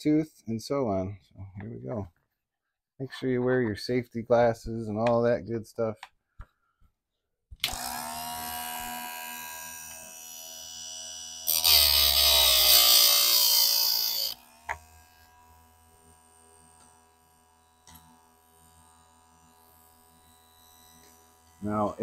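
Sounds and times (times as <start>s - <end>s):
grinder wheel whining: 7.7s - 15.3s
grinding metal tooth: 11.5s - 15.4s.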